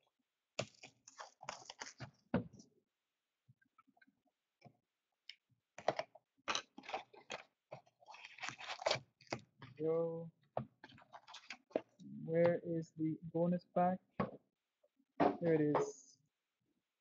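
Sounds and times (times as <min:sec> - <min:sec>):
plastic wrap crackling: 0:00.6 - 0:02.2.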